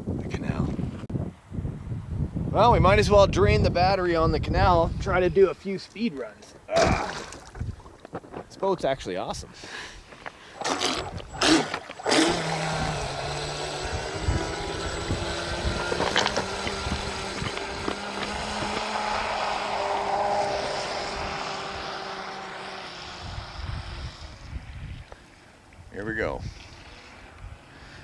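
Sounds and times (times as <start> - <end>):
boat motor whining: 10.5 - 25.2.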